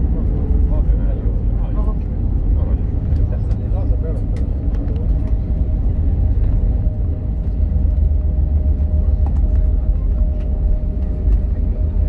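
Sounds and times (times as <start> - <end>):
airplane wheels and engines rumbling: 0.0 - 12.0.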